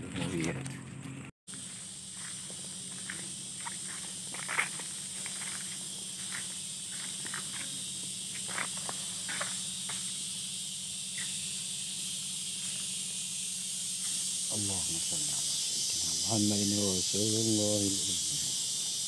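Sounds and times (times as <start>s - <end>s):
footsteps crunching on dry leaves: 0.2s - 10.1s
high insect drone: 1.5s - 19.0s.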